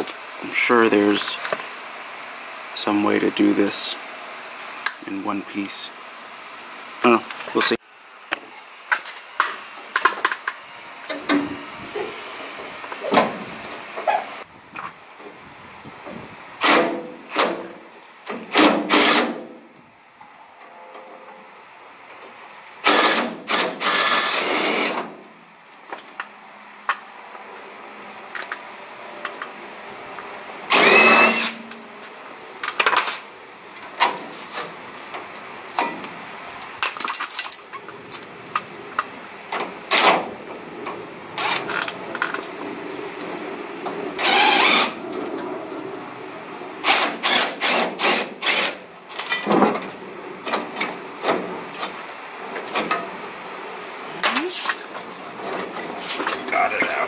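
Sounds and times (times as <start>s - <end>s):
impact driver running: 22.9s - 25.0s
tools and metal parts clanking: 35.8s - 39.1s, 49.1s - 52.0s.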